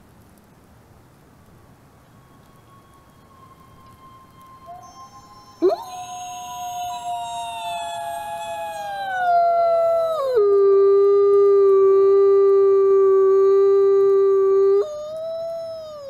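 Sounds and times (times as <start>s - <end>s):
wolf howling: 3.8s - 16.0s.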